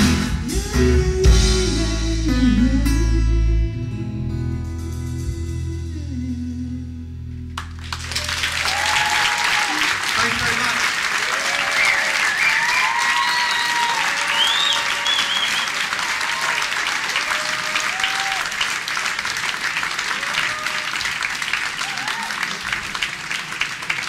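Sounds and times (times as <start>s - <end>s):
audience applauding: 7.6s - 24.0s
audience shouts and whistles: 8.1s - 10.0s, 11.3s - 18.6s.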